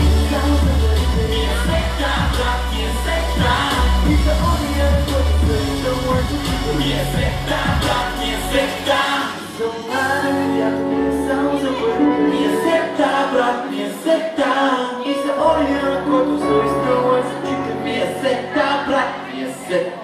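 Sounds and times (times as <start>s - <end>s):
deep bass: 0.0s - 13.3s
pop song with singing: 0.0s - 20.0s.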